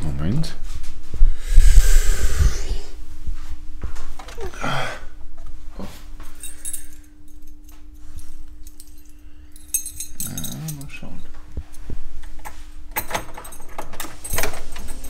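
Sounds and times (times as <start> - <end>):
faint steady hum: 0.0 - 15.0
keys jingling: 6.4 - 11.8, 12.4 - 15.0.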